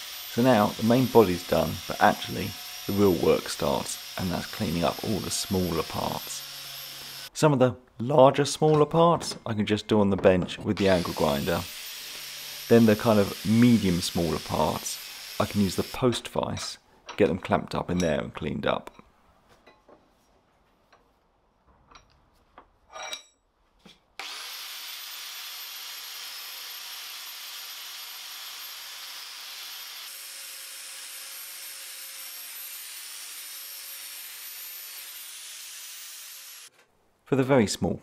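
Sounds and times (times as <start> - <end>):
wire wheel grinder scouring metal: 0.0 - 7.3.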